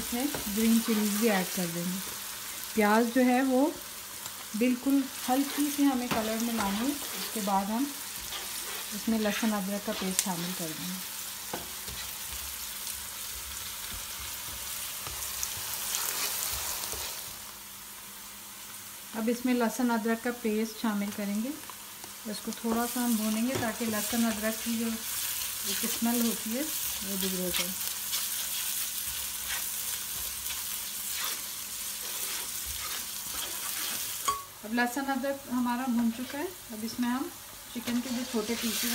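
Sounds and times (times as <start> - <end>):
onions sizzling in oil: 0.0 - 38.9
spatula scraping wok: 4.9 - 10.8, 13.4 - 17.3, 26.8 - 34.4, 37.8 - 38.9.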